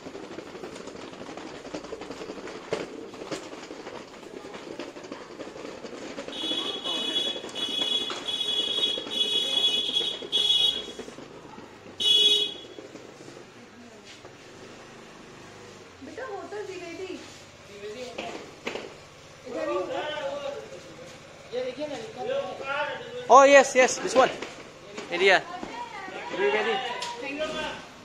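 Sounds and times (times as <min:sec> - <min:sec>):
street background noise: 0:00.0 - 0:28.0
high-pitched vehicle horn honking: 0:06.3 - 0:11.0, 0:12.0 - 0:12.8.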